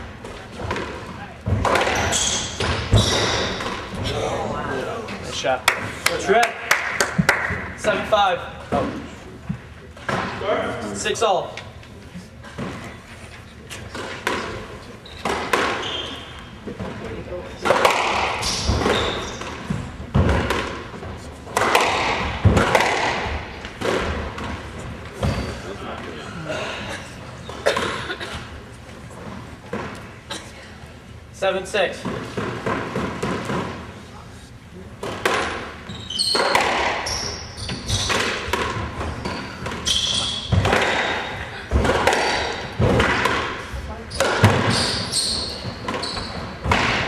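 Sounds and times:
rackets striking ball: 0:00.1 - 0:04.1, 0:13.9 - 0:25.6, 0:32.0 - 0:34.0, 0:35.0 - 0:47.0
shoe squeaks on wooden floor: 0:01.9 - 0:03.6, 0:15.0 - 0:16.6, 0:18.4 - 0:19.5, 0:35.8 - 0:38.2, 0:39.1 - 0:40.6, 0:44.1 - 0:46.6.

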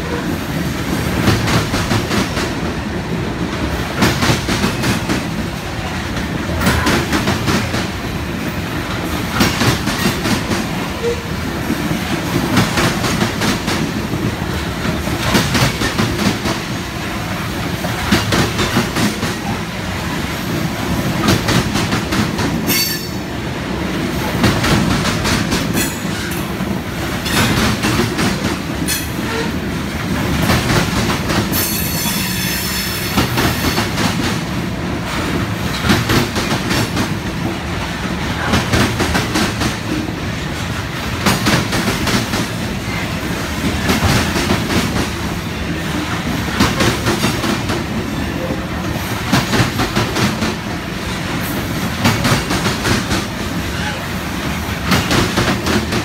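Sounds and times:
freight train rumbling past: 0:00.0 - 0:56.0
wheels clacking over rail joints: 0:24.3 - 0:34.4.

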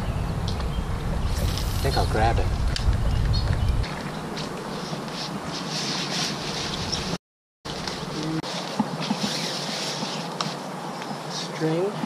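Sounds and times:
leaves and kite fabric rustling: 0:01.1 - 0:12.0
steady high hiss: 0:01.2 - 0:02.5.

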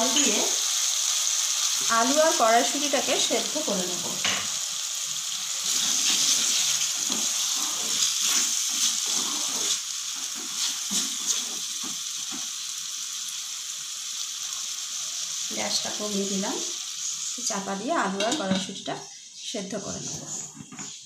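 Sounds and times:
food sizzling and hissing in pan: 0:00.0 - 0:21.0
spatula scraping pan: 0:05.6 - 0:12.1.

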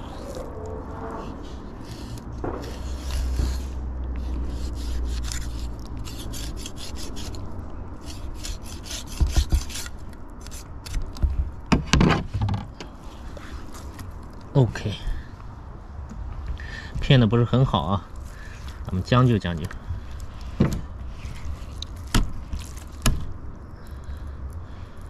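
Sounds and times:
knife scraping through fish bones: 0:00.0 - 0:11.2.

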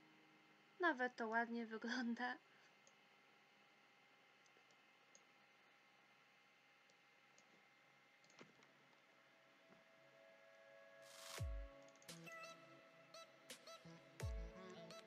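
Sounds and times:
computer mouse clicks: 0:04.4 - 0:05.3, 0:06.9 - 0:07.6, 0:08.2 - 0:08.7.

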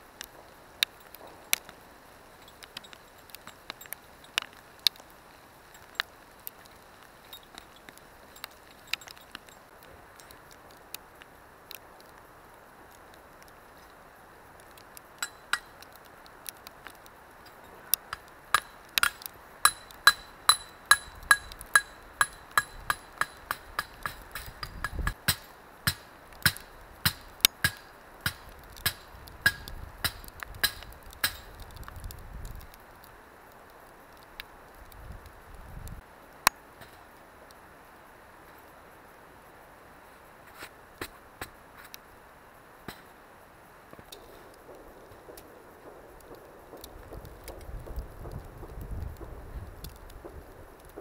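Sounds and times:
hammer striking metal: 0:18.6 - 0:31.4.

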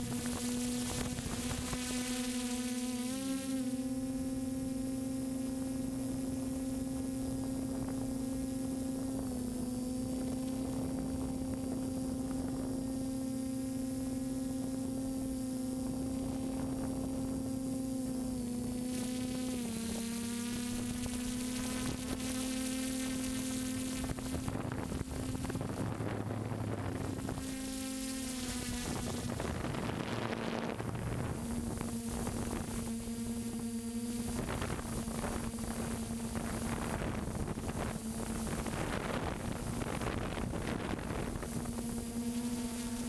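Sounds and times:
drone propellers buzzing whine: 0:00.0 - 0:43.0.

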